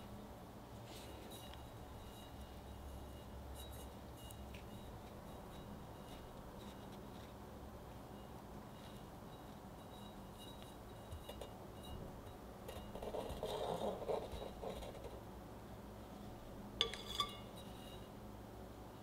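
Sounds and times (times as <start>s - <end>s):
metal spatula scraping on icing: 12.7s - 15.2s, 16.8s - 18.1s
metal spatula clinking on edge: 16.8s - 17.8s.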